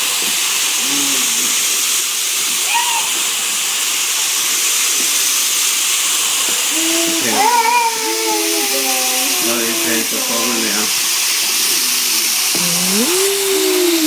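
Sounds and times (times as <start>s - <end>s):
steady hiss: 0.0s - 14.0s
baby vocalizing: 0.8s - 1.6s, 6.7s - 10.5s, 12.6s - 14.0s.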